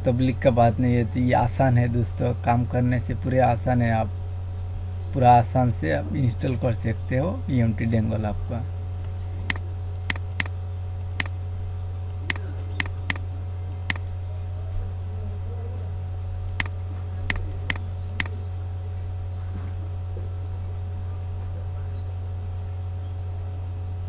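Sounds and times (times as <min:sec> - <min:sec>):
steady low hum: 0:00.0 - 0:24.0
computer mouse clicks: 0:09.4 - 0:10.5, 0:12.2 - 0:14.1, 0:16.5 - 0:16.7.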